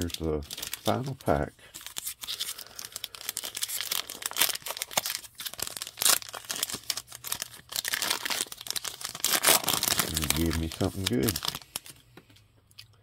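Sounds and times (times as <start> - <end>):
foil wrapper ripping: 0.0 - 1.2, 1.8 - 11.9
foil wrapper crinkling: 0.0 - 12.0.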